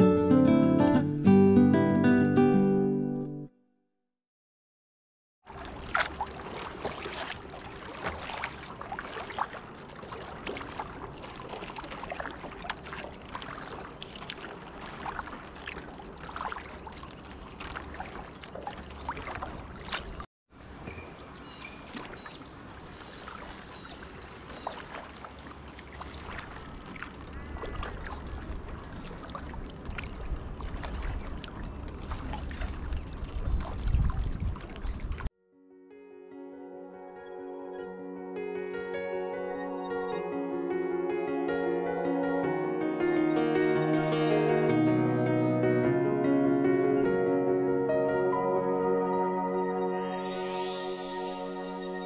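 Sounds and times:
paddle splashing water: 5.4s - 35.3s.

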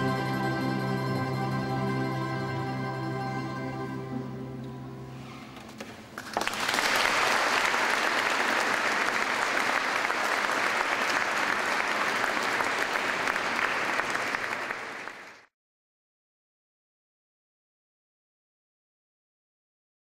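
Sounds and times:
audience applauding: 6.1s - 15.5s.

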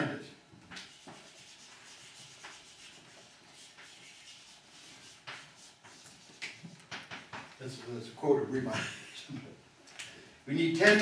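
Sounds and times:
chalk scratching on blackboard: 0.8s - 6.9s.

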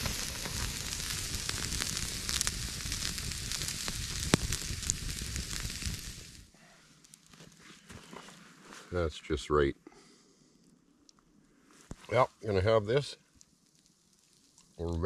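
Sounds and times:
steak sizzling on a grill: 0.0s - 6.5s
fire popping: 0.0s - 9.1s, 10.0s - 15.0s
campfire crackling: 0.0s - 15.0s.

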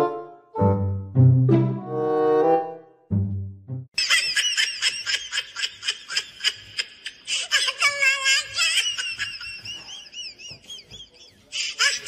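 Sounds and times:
high-pitched laughter: 4.0s - 12.0s.

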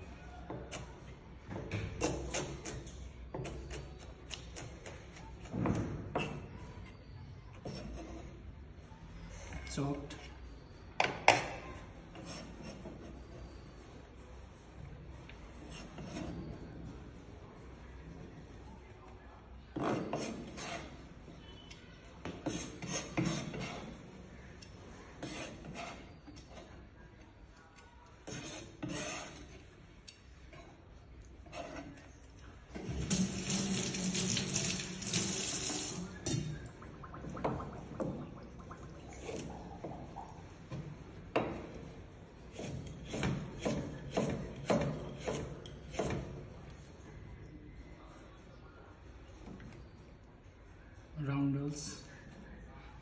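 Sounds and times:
knife chopping on cutting board: 42.5s - 46.3s.

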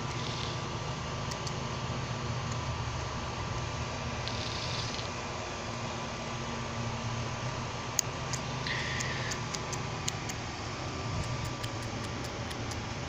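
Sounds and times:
clippers snipping: 11.2s - 12.9s.

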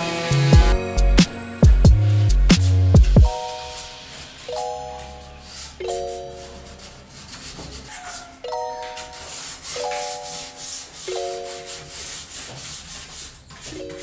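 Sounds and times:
sandpaper rubbing on wood: 0.0s - 0.8s, 1.9s - 14.0s
background music: 0.0s - 7.1s, 8.4s - 12.3s
chiming chords: 0.6s - 6.8s, 8.4s - 11.8s.

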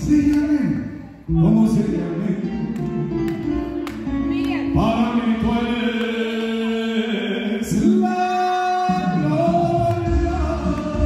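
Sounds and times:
backing music: 0.0s - 11.0s
person singing into microphone: 4.4s - 11.0s.

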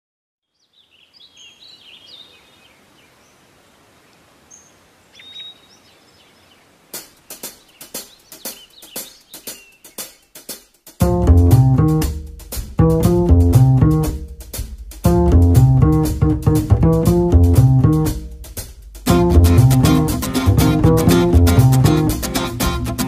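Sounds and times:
songbirds chirping: 0.4s - 11.1s
faint outdoor ambience: 0.4s - 23.0s
sharp ticks: 7.0s - 11.2s.

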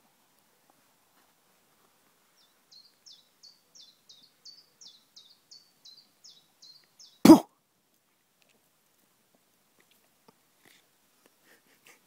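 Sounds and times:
songbird chirping: 1.0s - 7.4s.

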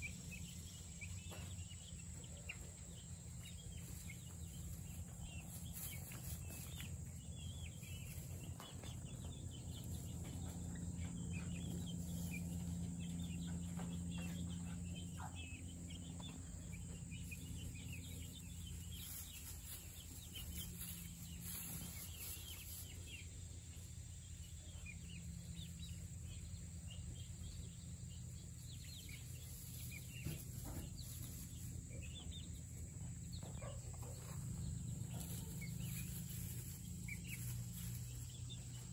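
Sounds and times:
chicks peeping and clucking: 0.0s - 38.9s
steady low hum: 0.0s - 38.9s.

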